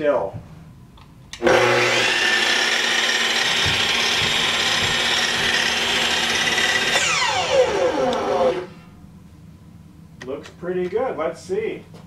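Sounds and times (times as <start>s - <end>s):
miter saw blade winding down: 1.4s - 8.9s.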